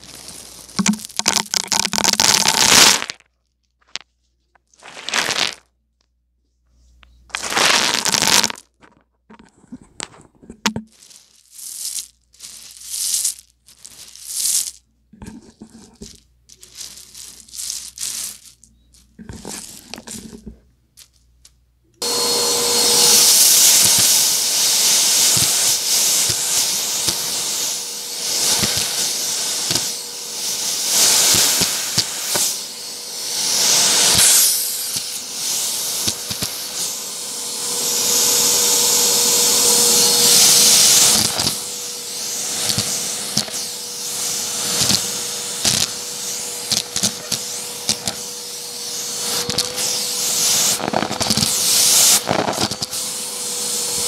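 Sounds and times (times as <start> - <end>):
dry beans rattling on a rug: 0.0 - 5.7, 7.2 - 21.6, 23.0 - 53.0
vacuum cleaner running: 7.3 - 8.6, 22.0 - 54.0.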